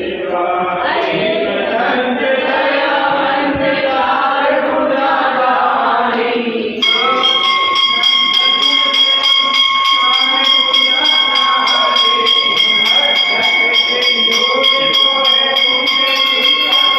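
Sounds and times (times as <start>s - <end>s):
group chanting in unison: 0.0s - 16.9s
high ringing tone: 6.8s - 16.9s.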